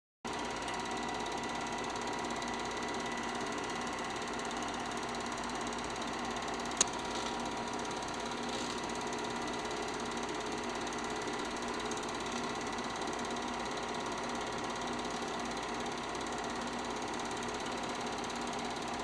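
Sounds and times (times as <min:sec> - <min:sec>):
film projector whirring: 0:00.3 - 0:19.0
sharp click: 0:06.7 - 0:07.0.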